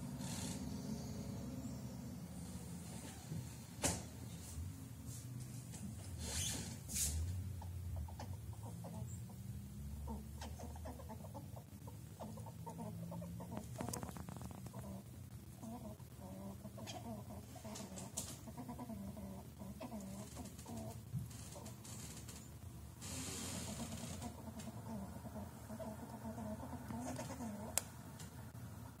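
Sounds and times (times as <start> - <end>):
squirrel clucking calls: 7.5 - 21.0, 24.2 - 28.0.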